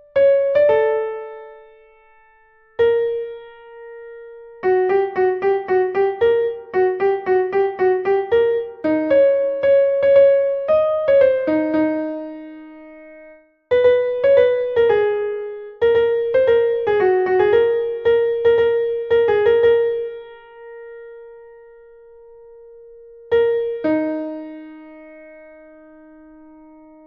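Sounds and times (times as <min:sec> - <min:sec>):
piano melody: 0:00.0 - 0:27.0.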